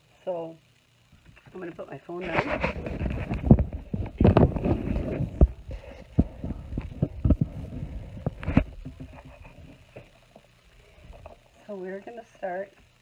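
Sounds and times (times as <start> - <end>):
phone handling rubbing and bumping: 2.3 - 10.1.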